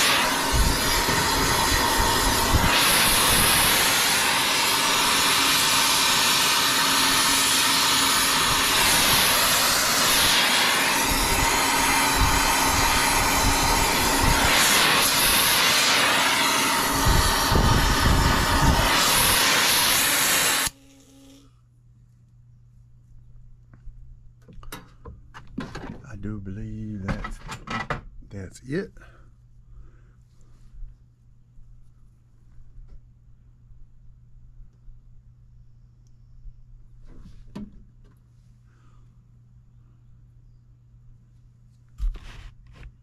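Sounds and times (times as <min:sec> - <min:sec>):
torch flame hissing: 0:00.0 - 0:21.5.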